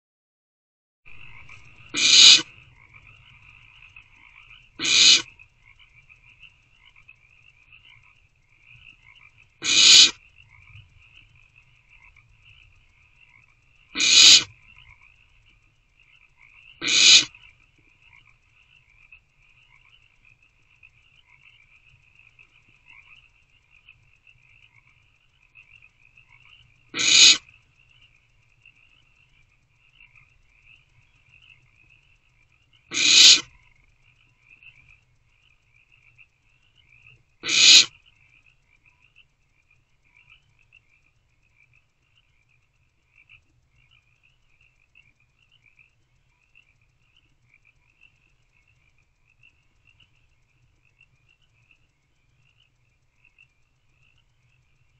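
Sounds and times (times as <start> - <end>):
high trilling night chorus: 1.1 - 54.9
owlets hissing: 1.9 - 2.5, 4.8 - 5.3, 9.6 - 10.2, 14.0 - 14.5, 16.8 - 17.3, 27.0 - 27.4, 32.9 - 33.5, 37.4 - 37.9.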